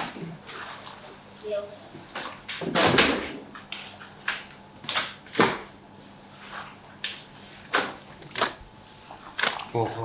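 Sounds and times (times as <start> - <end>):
wet slaps of raw meat: 9.4 - 9.6.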